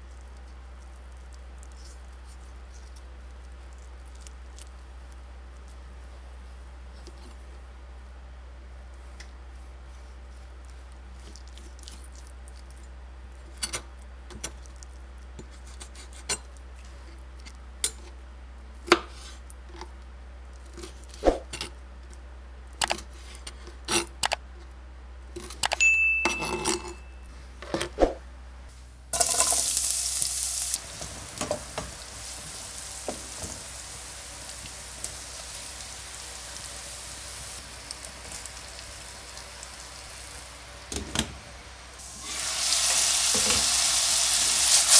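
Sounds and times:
meat sizzling in pan: 29.1s - 44.9s.

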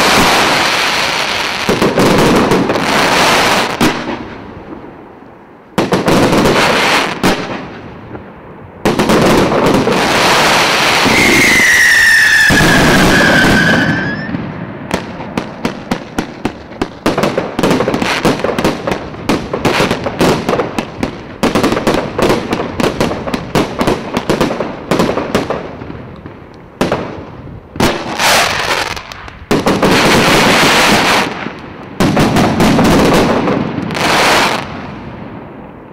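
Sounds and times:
firework cake bursts: 0.0s - 4.4s, 8.9s - 26.2s
sharp separate firework reports: 0.0s - 4.9s, 5.8s - 8.2s, 8.8s - 26.2s, 26.8s - 35.9s
firework whistle falling in pitch: 11.0s - 14.4s.

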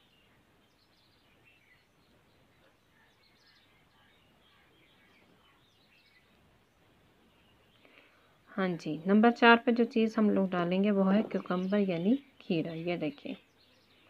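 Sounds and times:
faint background hiss: 0.0s - 14.0s.

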